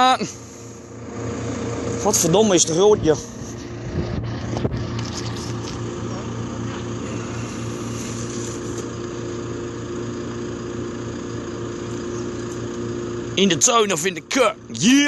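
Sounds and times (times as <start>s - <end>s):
motor droning: 0.0s - 15.0s.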